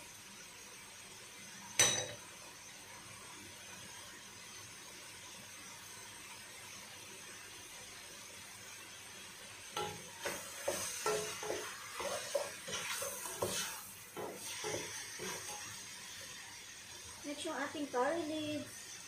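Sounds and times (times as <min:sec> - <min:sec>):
faint steady hiss: 0:00.0 - 0:19.0
wooden spoon scraping a pot: 0:10.2 - 0:15.8.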